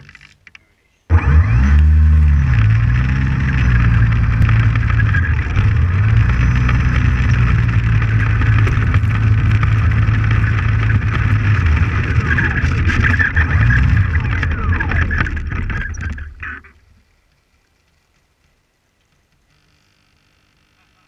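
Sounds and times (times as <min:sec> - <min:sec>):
electric motor and propeller: 0:01.1 - 0:16.8
prop-wash rumble on microphone: 0:01.1 - 0:17.0.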